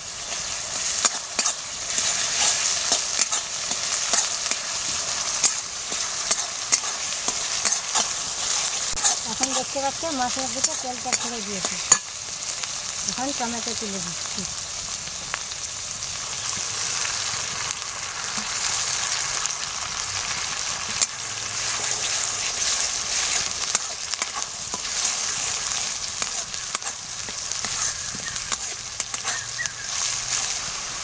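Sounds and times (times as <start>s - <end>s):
paste sizzling in hot oil: 0.0s - 31.0s
metal spatula scraping a pan: 0.3s - 12.1s, 20.9s - 30.8s.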